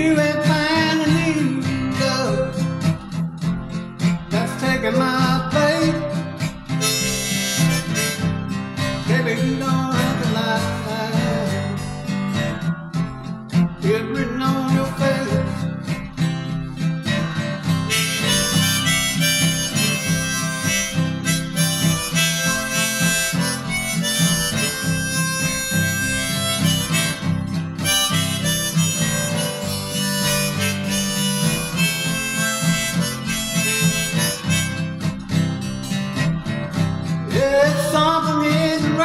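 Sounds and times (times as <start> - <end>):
acoustic guitar chords: 0.0 - 39.0
harmonica solo: 5.8 - 10.2, 17.6 - 36.8.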